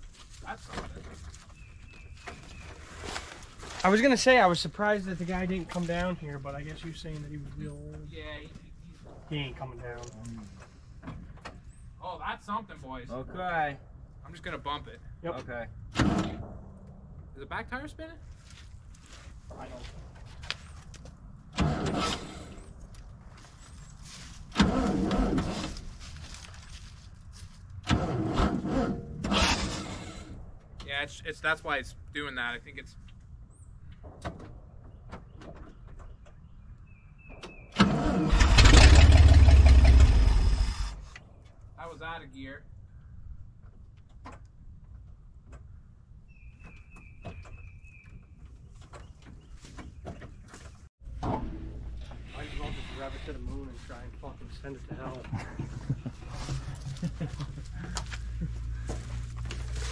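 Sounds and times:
truck engine starter cranking: 24.5s - 25.8s, 37.7s - 41.1s.

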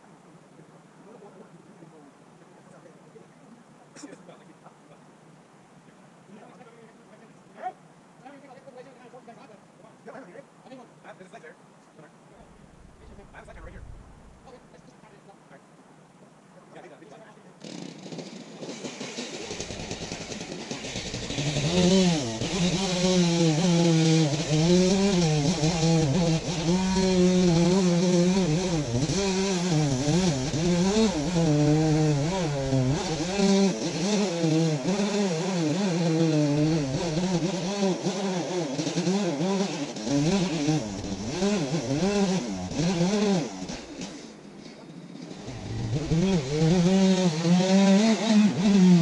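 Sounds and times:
chainsaw cutting wood: 17.6s - 44.4s, 45.2s - 49.0s.

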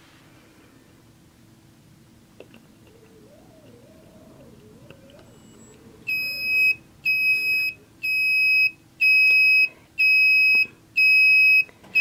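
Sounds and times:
high-pitched buzzer beeps: 5.4s - 12.0s.

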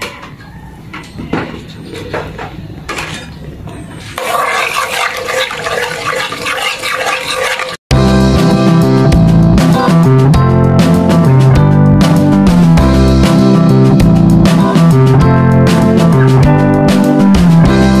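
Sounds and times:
spoon scraping a pot: 4.1s - 7.8s
spoon stirring liquid in a pot: 4.2s - 7.8s.

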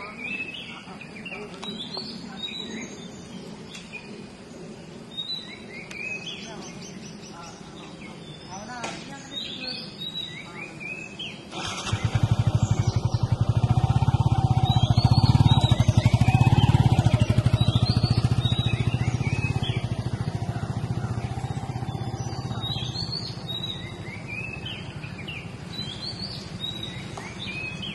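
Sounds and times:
birds chirping: 0.0s - 27.9s
motorcycle engine passing by: 11.5s - 27.9s.

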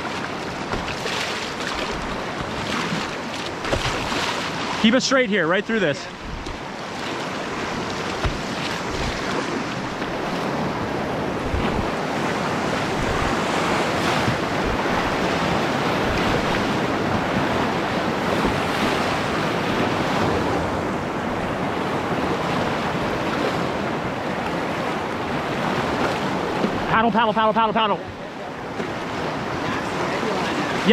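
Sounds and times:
river rapids rushing and splashing: 0.0s - 30.9s
wind on microphone: 7.4s - 24.2s
low thumps: 8.1s - 9.2s, 12.9s - 13.4s.

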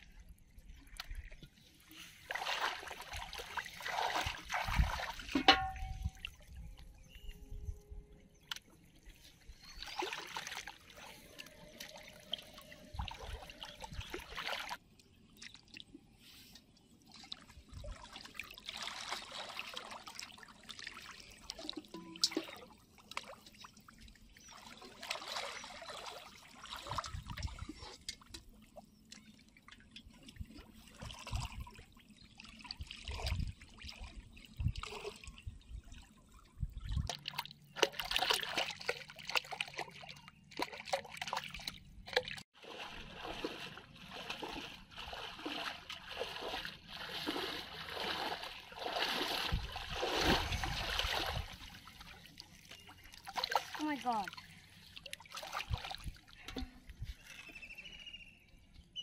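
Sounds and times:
shallow water splashing: 0.7s - 6.4s, 9.0s - 16.0s, 17.0s - 57.6s
metal pot pushed through water: 4.7s - 6.2s.

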